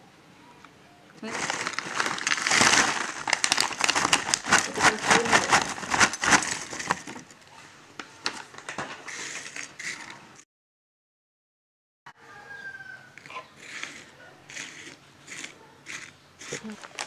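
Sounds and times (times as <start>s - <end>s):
chips clattering onto a plate: 1.4s - 7.2s.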